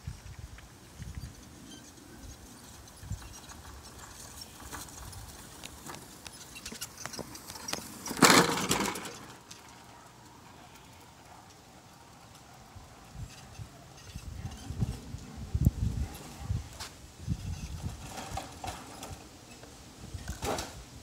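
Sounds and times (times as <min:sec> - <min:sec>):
wheels rolling over grass and asphalt: 0:00.0 - 0:21.0.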